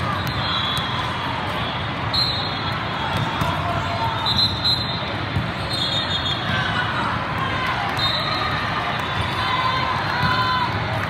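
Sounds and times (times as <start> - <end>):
balls bouncing and struck: 3.0 - 5.7.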